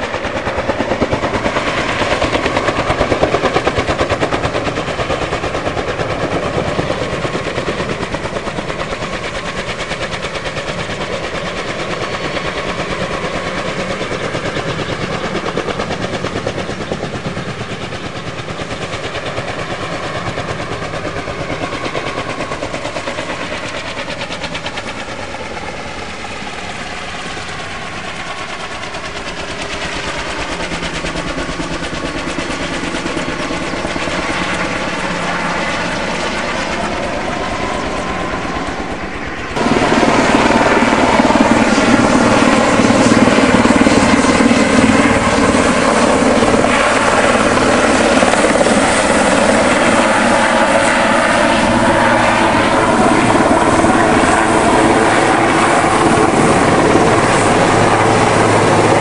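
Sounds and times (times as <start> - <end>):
helicopter rotor beating: 0.0 - 59.0.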